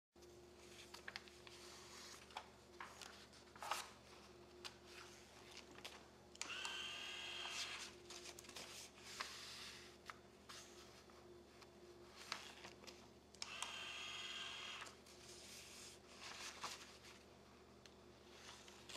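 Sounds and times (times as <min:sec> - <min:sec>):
paper rustling: 0:00.6 - 0:06.1, 0:07.5 - 0:13.1, 0:15.1 - 0:17.3
motor whirring: 0:06.4 - 0:07.8, 0:13.4 - 0:14.9.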